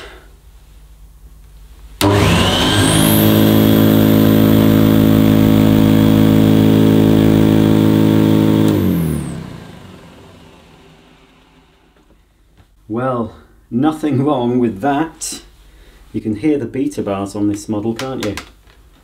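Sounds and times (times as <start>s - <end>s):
vacuum cleaner switch click: 2.0s - 6.4s, 7.0s - 10.4s
vacuum cleaner motor whining: 2.0s - 11.8s.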